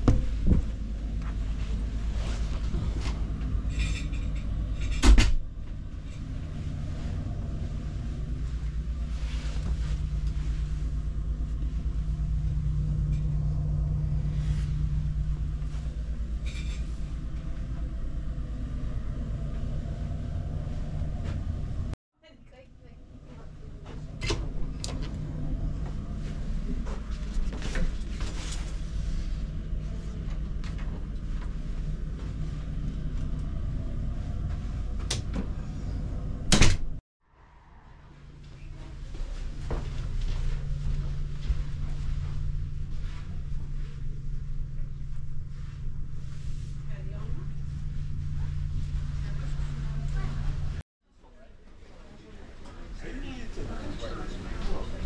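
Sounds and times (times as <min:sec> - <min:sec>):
ship engine rumble and hum: 0:00.0 - 0:50.9, 0:51.8 - 0:55.0
door shutting clunk: 0:36.4 - 0:37.0.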